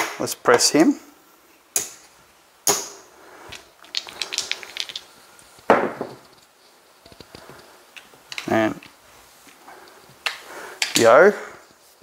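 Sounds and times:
casino chips clacking: 0:03.6 - 0:05.2.

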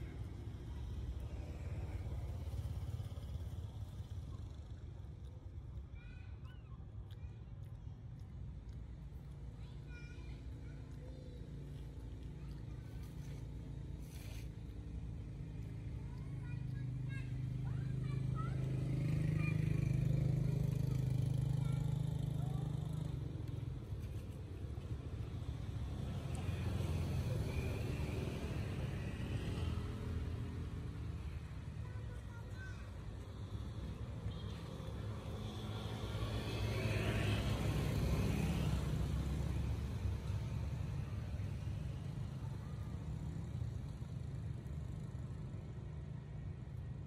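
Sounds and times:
low outdoor rumble: 0:00.0 - 0:35.7.

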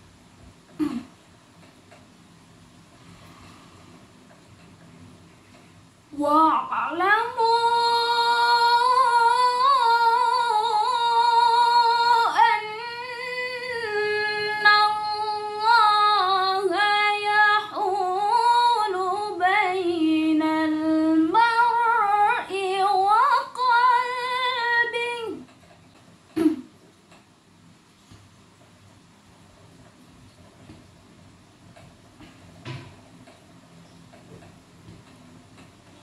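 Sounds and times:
woman reciting melodically: 0:06.1 - 0:25.5.

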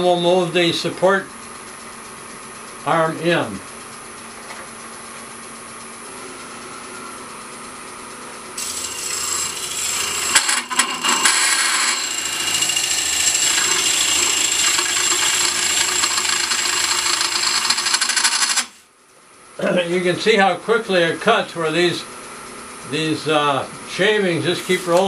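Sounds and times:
wood lathe running: 0:08.5 - 0:18.8, 0:24.0 - 0:25.0
cutter scraping wood: 0:08.6 - 0:18.7, 0:24.4 - 0:25.0.

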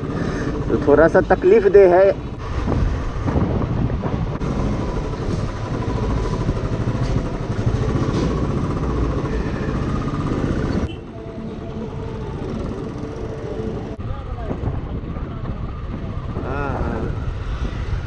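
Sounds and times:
road noise: 0:00.0 - 0:18.0
motorcycle engine running: 0:04.4 - 0:16.6.

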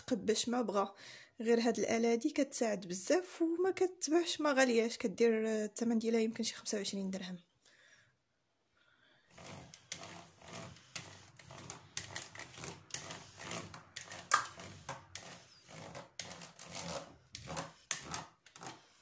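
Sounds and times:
dough docker rattling and scraping: 0:09.3 - 0:19.0.

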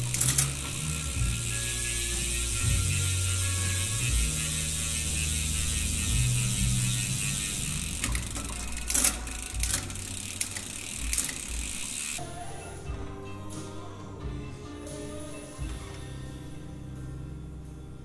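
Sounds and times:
bicycle chain running over cassette: 0:00.0 - 0:12.2
freehub pawls buzzing: 0:00.0 - 0:12.2.

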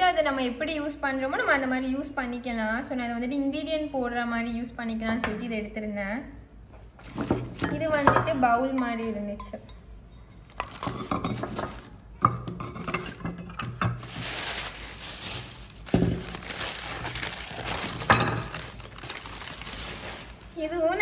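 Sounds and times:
newspaper and plastic bag rustling: 0:06.9 - 0:08.2, 0:10.5 - 0:12.0, 0:12.8 - 0:21.0
clay bowls clinking together: 0:07.6 - 0:14.0.

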